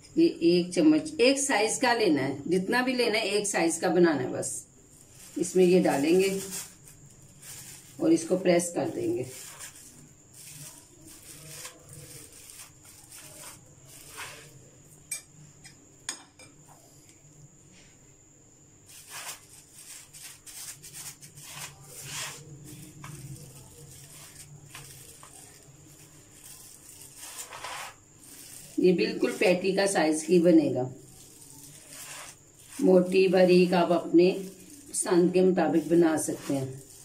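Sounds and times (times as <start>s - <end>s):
plastic wrap rustling: 4.8s - 14.7s, 18.9s - 37.0s
spoon scraping mince: 5.0s - 15.3s, 18.9s - 37.0s.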